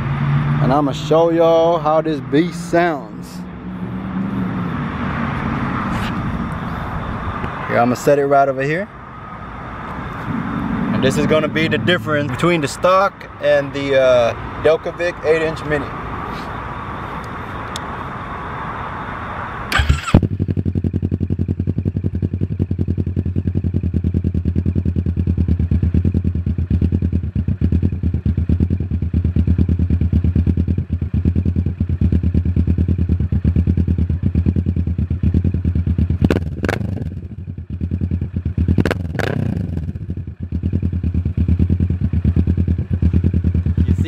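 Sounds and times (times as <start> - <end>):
motorcycle engine starting and idling: 19.7 - 44.0.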